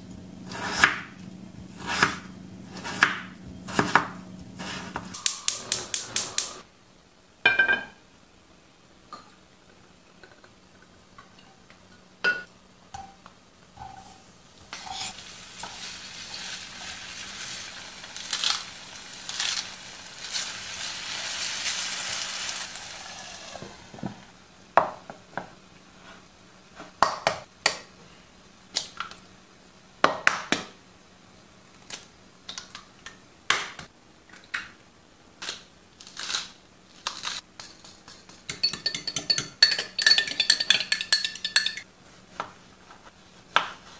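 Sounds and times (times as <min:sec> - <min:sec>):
potatoes sizzling in oil: 0:14.2 - 0:24.0
fork beating egg in bowl: 0:38.0 - 0:41.8.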